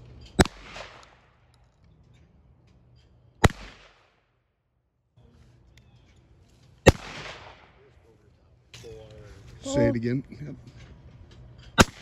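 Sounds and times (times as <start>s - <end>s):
shotgun shots with echo: 0.4s - 1.4s, 3.4s - 4.2s, 6.8s - 7.8s, 11.8s - 12.0s.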